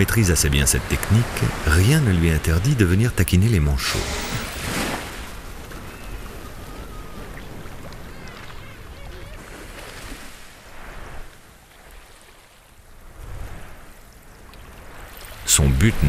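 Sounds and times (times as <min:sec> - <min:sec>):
sea water sloshing: 0:00.0 - 0:16.0
faint whistled calls: 0:05.8 - 0:09.4.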